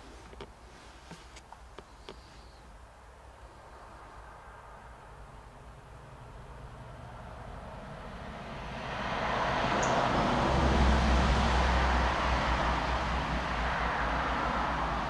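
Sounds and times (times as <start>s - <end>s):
vehicle passing by: 3.8s - 15.0s.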